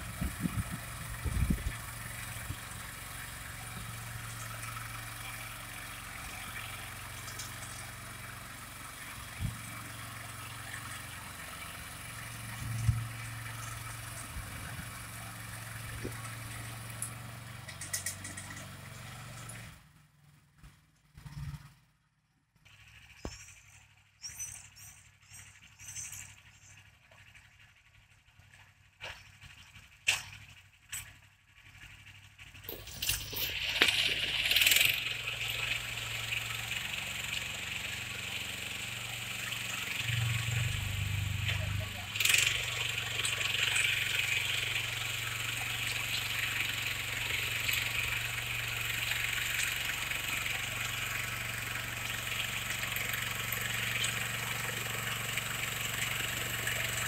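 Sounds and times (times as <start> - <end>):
small engine running under load: 0.0 - 21.9, 22.7 - 57.0
rotary tiller churning soil: 31.7 - 57.0.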